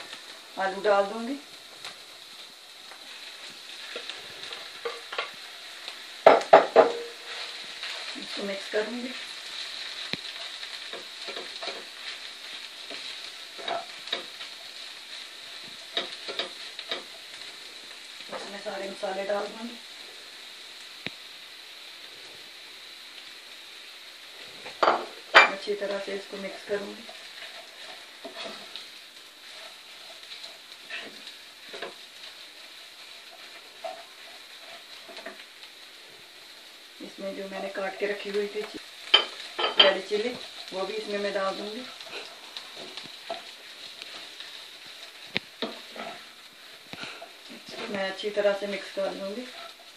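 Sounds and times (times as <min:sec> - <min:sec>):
potato and onions sizzling in oil: 0:00.0 - 0:49.9
wooden spoon scraping a pan: 0:03.0 - 0:17.5, 0:24.6 - 0:35.9, 0:37.1 - 0:49.9
wooden spoon knocking a pan: 0:06.2 - 0:07.2, 0:24.8 - 0:25.6.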